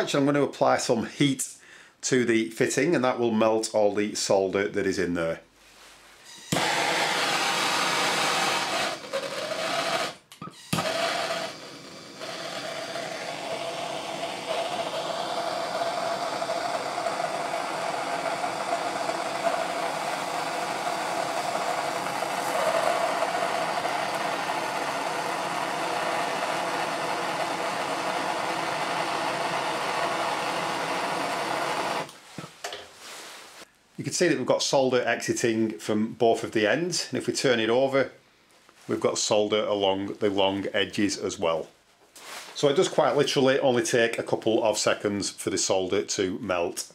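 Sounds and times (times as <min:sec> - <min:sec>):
blowtorch hissing: 0:06.5 - 0:32.1.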